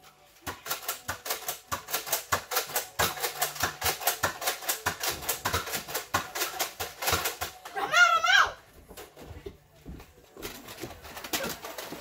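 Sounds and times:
toy blasters clicking: 0.6s - 7.6s.

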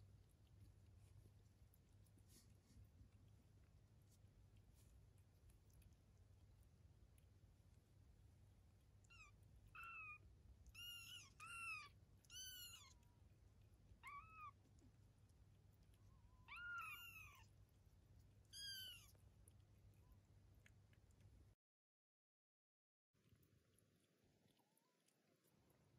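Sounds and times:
kittens mewing: 9.1s - 10.2s, 10.8s - 13.0s, 16.4s - 17.4s.

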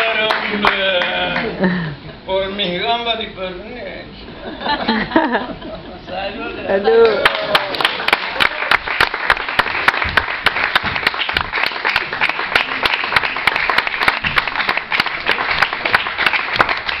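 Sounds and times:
audience applauding: 0.0s - 1.5s, 6.9s - 17.0s.

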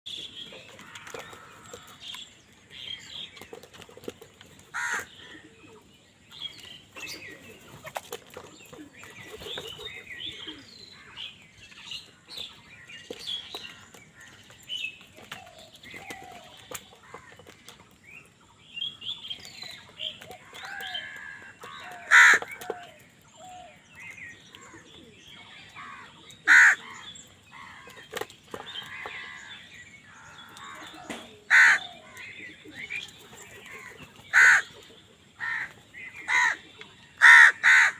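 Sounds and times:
loud crow caws: 4.7s - 5.3s, 20.8s - 22.6s, 25.8s - 27.0s, 30.5s - 32.0s, 33.8s - 34.7s, 35.4s - 36.6s, 37.2s - 37.9s
crows chattering: 4.7s - 5.6s, 20.2s - 23.0s, 24.6s - 37.9s.

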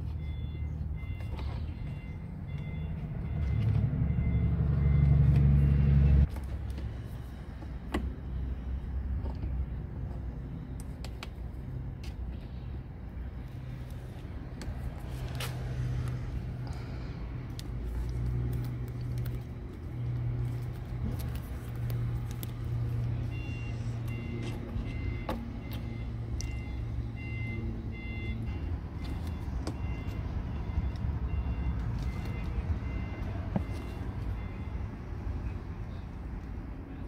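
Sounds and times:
engine rumble: 0.0s - 37.0s.

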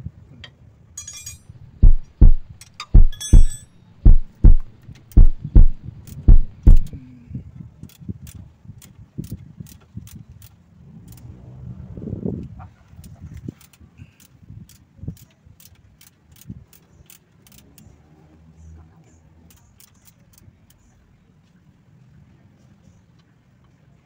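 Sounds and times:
metallic clinks: 1.0s - 1.6s, 2.6s - 3.8s
heavy low thumps on metal: 1.8s - 7.0s.

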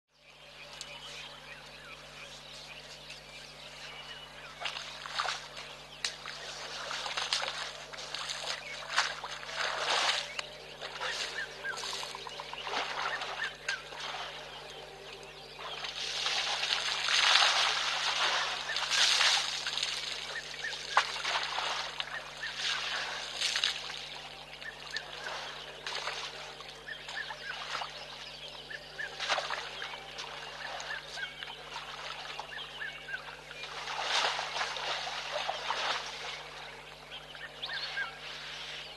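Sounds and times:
steady low hum: 0.1s - 38.9s
elephant splashing in mud: 4.6s - 14.6s, 15.6s - 28.1s, 29.0s - 32.5s, 33.6s - 36.8s.

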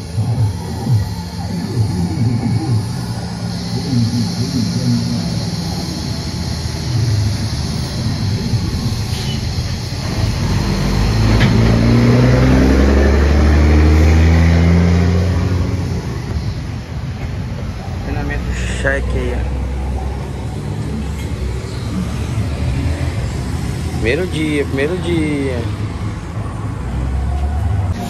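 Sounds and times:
welding arc hiss: 0.0s - 26.3s
vehicle engine accelerating past: 7.9s - 16.5s.

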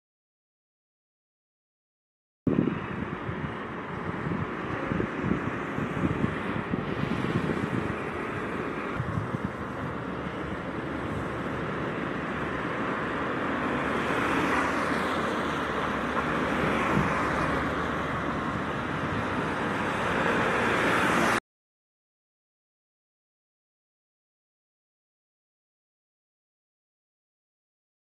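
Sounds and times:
cars passing on street: 2.5s - 21.4s.

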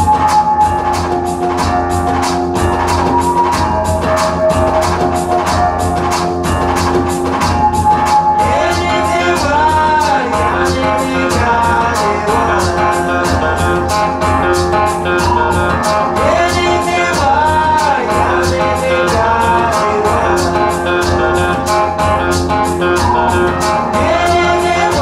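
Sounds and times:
guitar: 0.0s - 25.0s
shaker rhythm: 0.0s - 25.0s
woman singing: 8.4s - 13.8s, 16.2s - 21.6s, 23.8s - 25.0s.

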